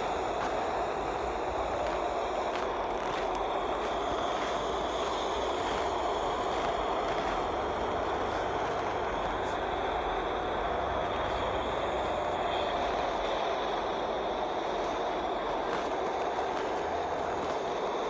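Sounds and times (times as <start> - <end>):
steady background noise: 0.0 - 18.0.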